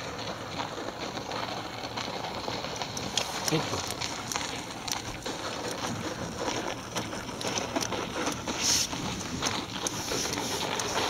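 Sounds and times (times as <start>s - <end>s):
clicks and crunches on ice: 0.0s - 11.0s
steady hiss: 7.8s - 11.0s.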